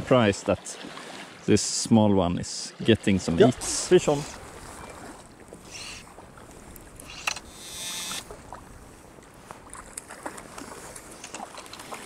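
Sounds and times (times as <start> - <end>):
fishing line zipping through guides: 5.6 - 6.1, 7.0 - 8.3.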